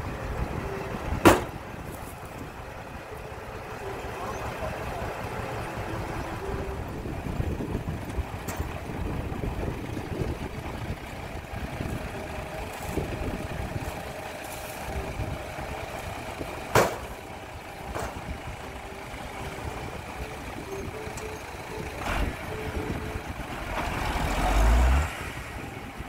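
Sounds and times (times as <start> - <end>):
dump truck diesel engine running: 0.0 - 26.0
sharp bang: 1.2 - 1.6, 16.7 - 17.1.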